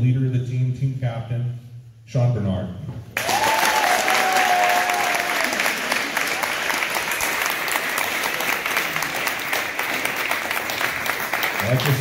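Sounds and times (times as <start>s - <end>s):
crowd applauding: 3.2s - 12.0s.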